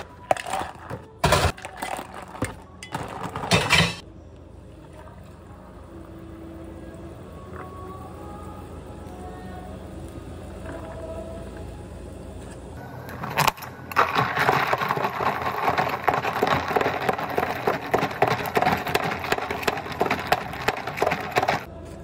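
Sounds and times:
ice rattling in shaken cup: 0.0s - 3.7s, 13.2s - 21.7s.

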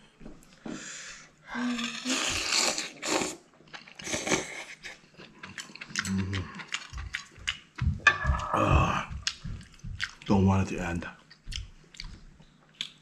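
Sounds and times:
chewing: 2.3s - 8.0s, 9.2s - 10.3s, 11.2s - 13.0s
closed-mouth hum: 7.8s - 12.2s.

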